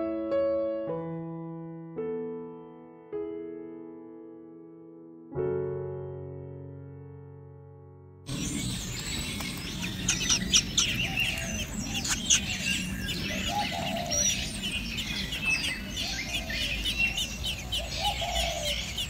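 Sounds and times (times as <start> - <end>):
birds chirping and twittering: 8.3 - 19.0.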